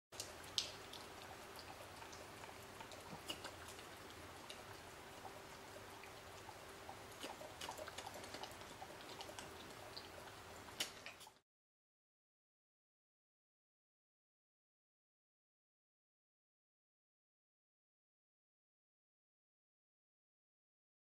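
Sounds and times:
dog lapping and slurping: 0.2 - 11.4
thin steady hum: 0.2 - 11.4.

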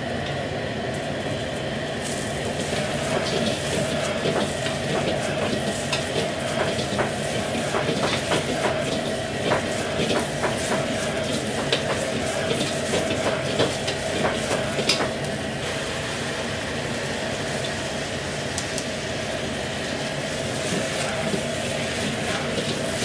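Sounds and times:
gas burner rushing: 0.0 - 23.0
vegetables sizzling in wok: 1.9 - 23.0
ladle knocking and scraping wok: 2.7 - 15.2, 20.6 - 23.0.

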